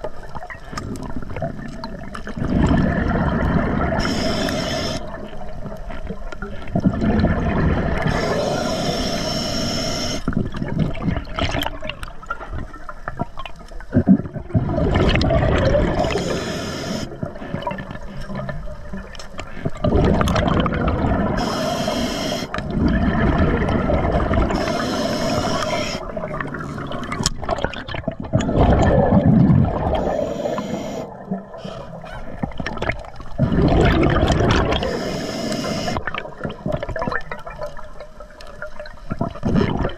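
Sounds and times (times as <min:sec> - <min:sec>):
exhaust bubbles: 0:00.8 - 0:05.2, 0:06.7 - 0:08.4, 0:13.9 - 0:16.4, 0:19.8 - 0:21.5, 0:22.5 - 0:31.6, 0:32.8 - 0:35.0
diver breathing through regulator: 0:03.9 - 0:05.1, 0:08.0 - 0:10.4, 0:16.0 - 0:17.2, 0:21.4 - 0:22.7, 0:24.4 - 0:26.2, 0:29.8 - 0:32.5, 0:34.7 - 0:36.1.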